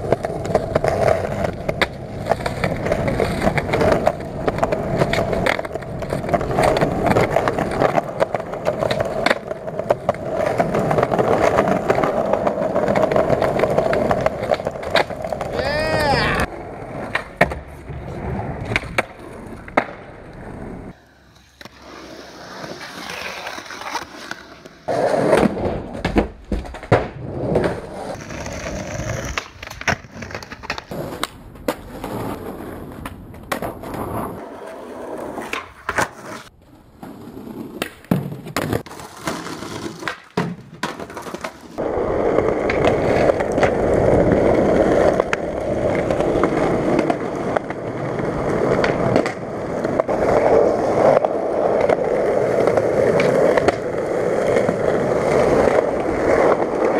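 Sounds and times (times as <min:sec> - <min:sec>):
skateboard clacks: 0:00.0 - 0:56.9
skateboard wheels rolling: 0:00.0 - 0:56.9.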